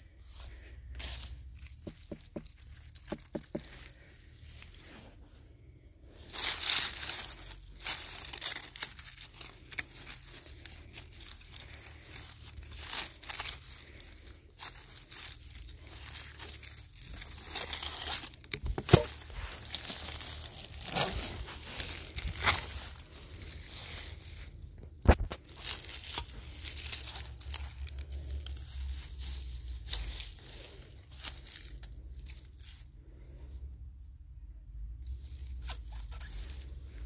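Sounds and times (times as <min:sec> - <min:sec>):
rustling of vines and leaves: 0:00.0 - 0:37.0
knife cutting through vines: 0:17.3 - 0:20.1.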